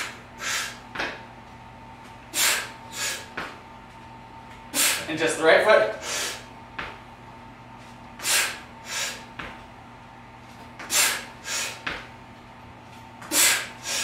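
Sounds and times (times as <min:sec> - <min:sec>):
man breathing hard: 0:00.0 - 0:00.8, 0:02.3 - 0:03.3, 0:04.7 - 0:05.1, 0:06.0 - 0:06.5, 0:08.2 - 0:09.3, 0:10.8 - 0:12.0, 0:13.2 - 0:14.0.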